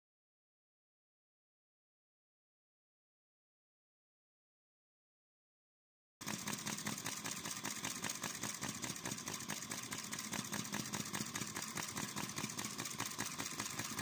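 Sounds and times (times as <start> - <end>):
small engine clicking rapidly: 6.2 - 14.0.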